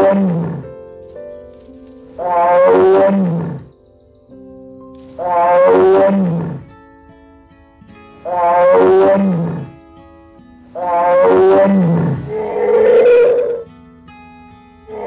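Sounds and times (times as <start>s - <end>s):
large animal calling: 0.0s - 0.7s, 2.2s - 3.7s, 5.2s - 6.7s, 8.2s - 9.8s, 10.8s - 13.6s
background music: 0.0s - 15.0s.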